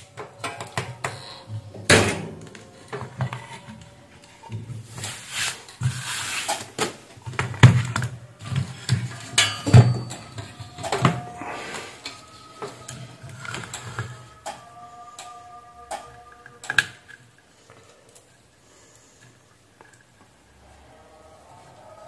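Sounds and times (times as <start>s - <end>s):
knocks and clatter of handled parts: 6.7s - 11.3s.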